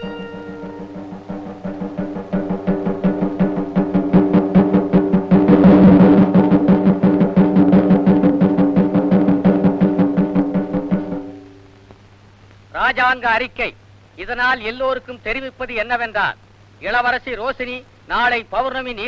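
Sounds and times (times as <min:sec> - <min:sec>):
fast even drumbeat: 0:00.0 - 0:11.4.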